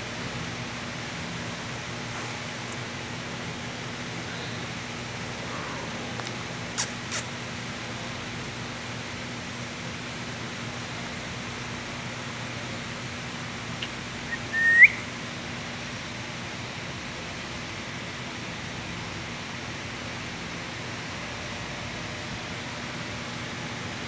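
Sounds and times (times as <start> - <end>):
high rising chirp: 14.3 - 15.0.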